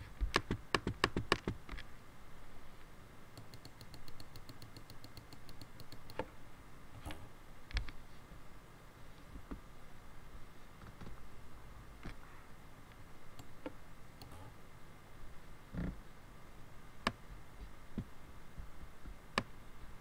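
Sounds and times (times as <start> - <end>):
keyboard keystrokes: 3.4 - 6.3
mouse clicks: 3.4 - 6.3.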